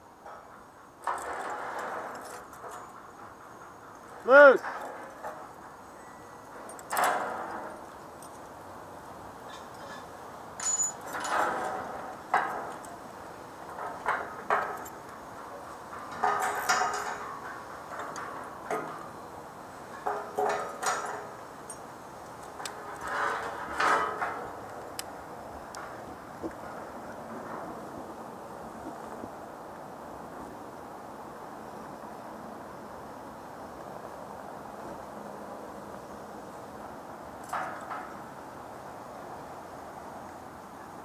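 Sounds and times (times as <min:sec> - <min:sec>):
steady low hiss: 0:00.0 - 0:41.0
steel members clanking: 0:00.2 - 0:08.4, 0:09.6 - 0:19.2, 0:19.8 - 0:25.0.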